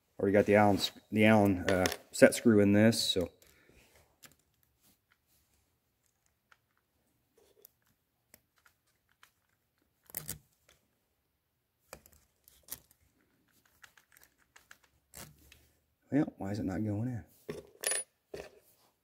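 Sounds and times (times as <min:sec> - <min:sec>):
small plastic parts clicking: 0:06.0 - 0:10.4, 0:11.9 - 0:15.6.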